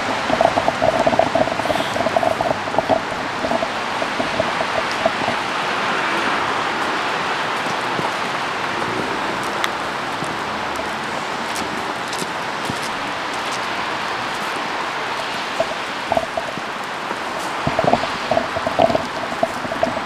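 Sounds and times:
close drops pattering: 0.0 - 6.6, 15.5 - 20.0
steady rain: 0.0 - 20.0.

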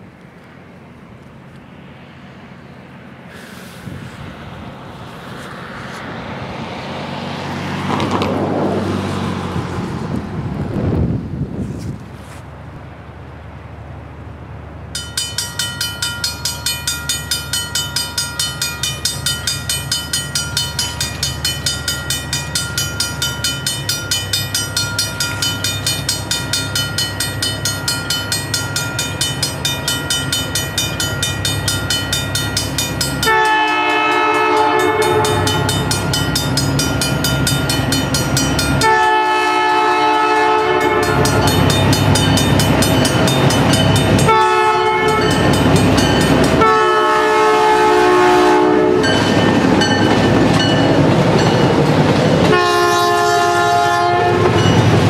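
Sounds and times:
diesel locomotives rumbling: 0.0 - 55.0
crossing warning bell ringing: 14.9 - 55.0
locomotive horn blasts: 33.2 - 36.1, 38.6 - 42.2, 44.2 - 45.4, 46.5 - 49.2, 52.4 - 54.8.

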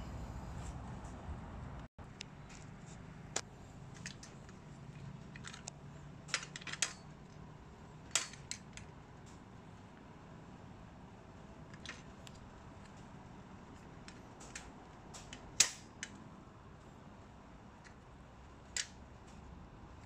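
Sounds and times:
metal arm clicking and clacking: 5.3 - 7.4, 8.1 - 8.9.

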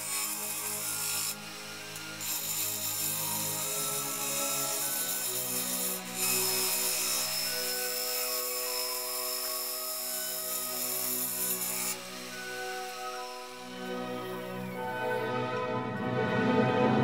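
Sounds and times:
gouge shearing wood on lathe: 0.0 - 15.4
lathe running hum: 0.0 - 16.2.

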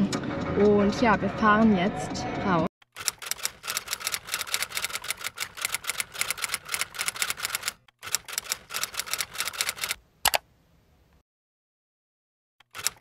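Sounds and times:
typewriter keys clicking: 3.0 - 10.4, 12.6 - 13.0.

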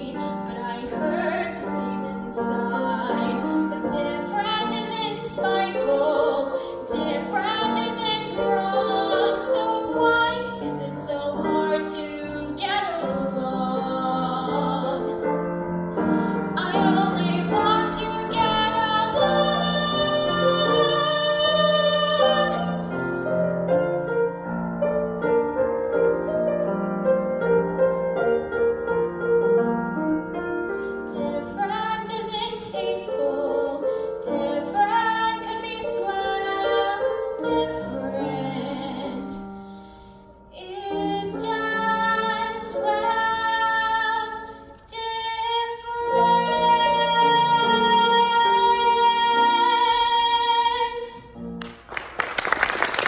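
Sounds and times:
girl singing into microphone: 40.5 - 51.3.

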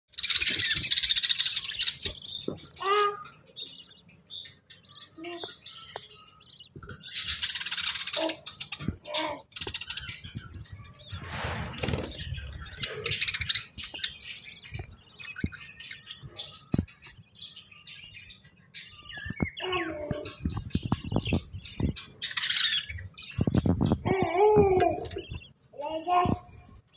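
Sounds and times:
bird chirps: 0.1 - 26.9
budgie chicks begging calls: 17.8 - 26.6.

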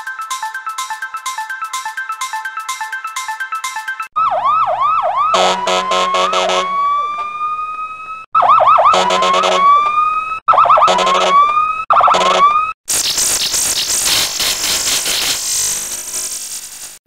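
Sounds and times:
electronic police siren: 0.0 - 12.8.

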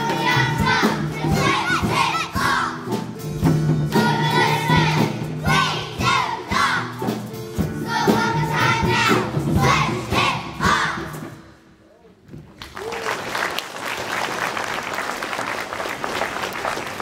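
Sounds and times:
children singing: 0.0 - 3.0, 3.9 - 7.2, 7.8 - 11.4.

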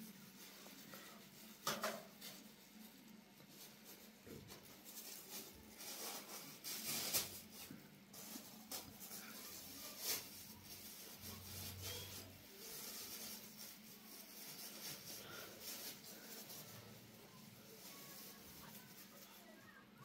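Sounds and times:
plastic bag rustling and crinkling: 0.0 - 20.0.

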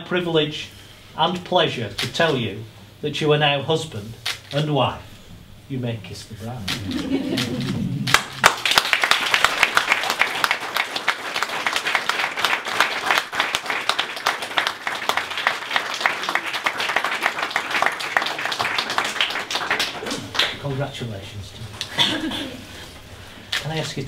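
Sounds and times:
crowd applauding: 6.7 - 20.6.

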